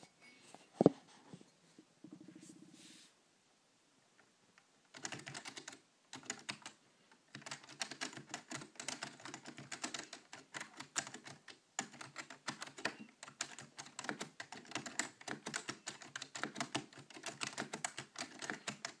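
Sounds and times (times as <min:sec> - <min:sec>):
typing on a mechanical keyboard: 0:04.9 - 0:19.0.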